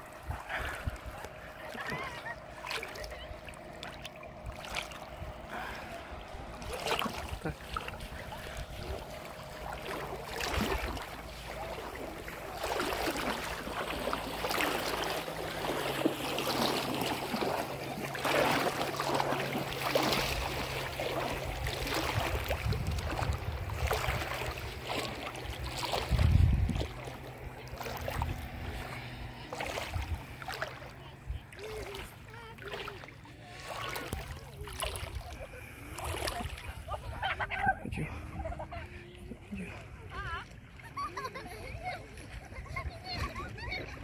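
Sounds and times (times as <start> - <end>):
waves lapping in shallow water: 0.0 - 44.0
wind buffeting microphone: 19.9 - 31.8, 34.9 - 40.3.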